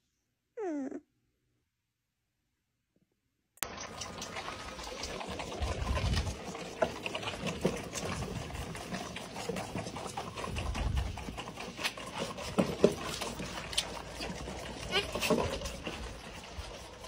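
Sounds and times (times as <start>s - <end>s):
goat kids sucking and slurping: 3.6s - 17.0s.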